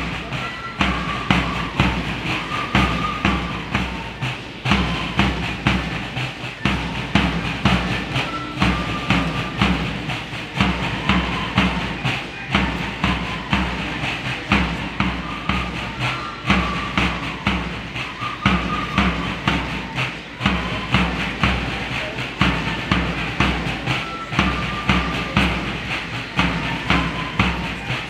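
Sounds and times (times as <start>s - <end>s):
marching drums beating: 0.0s - 28.0s.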